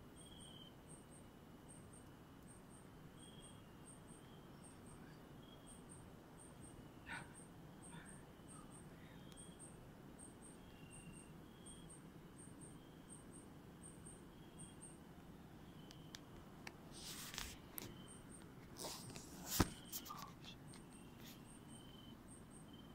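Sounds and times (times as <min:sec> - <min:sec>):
insect chirping: 0:00.0 - 0:22.9
low short insect calls: 0:00.0 - 0:22.9
handling knocks and rustles: 0:18.6 - 0:20.3.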